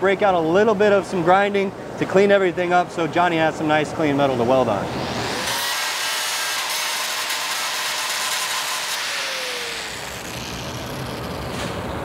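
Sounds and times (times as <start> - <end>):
angle grinder on steel: 4.5 - 11.6.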